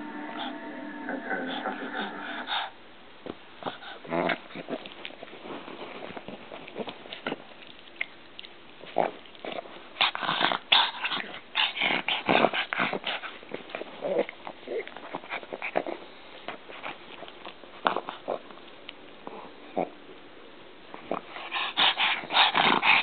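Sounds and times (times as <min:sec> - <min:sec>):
dog munching and mouthing: 0:03.6 - 0:20.0, 0:21.0 - 0:23.0.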